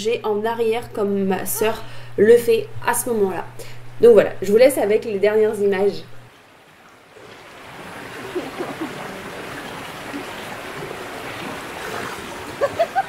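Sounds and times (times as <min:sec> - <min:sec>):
river water rushing: 0:06.3 - 0:13.0.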